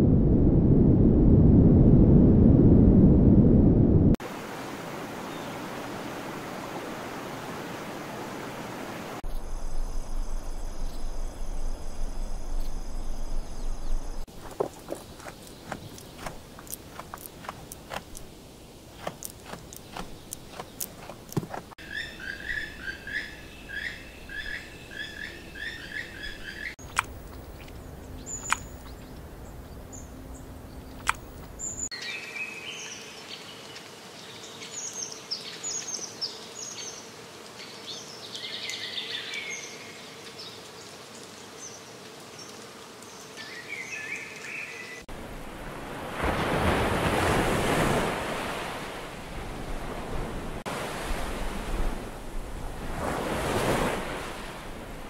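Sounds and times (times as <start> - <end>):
waves breaking on shore: 4.2 - 9.2, 45.1 - 55.0
birds chirping: 9.3 - 45.0
birds calling: 13.3 - 18.3, 18.9 - 37.1
sharp clicks: 26.8 - 27.8, 28.4 - 28.9, 31.0 - 31.6.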